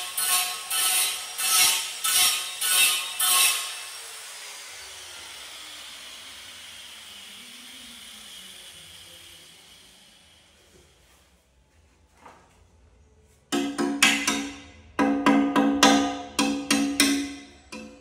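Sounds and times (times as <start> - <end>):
rhythmic rasping strokes: 13.5 - 18.0.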